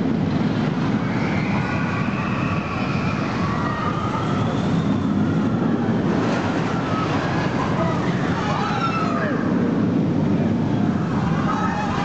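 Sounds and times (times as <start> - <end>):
roller coaster rumbling: 0.0 - 12.0
whines rising and falling: 0.0 - 12.0.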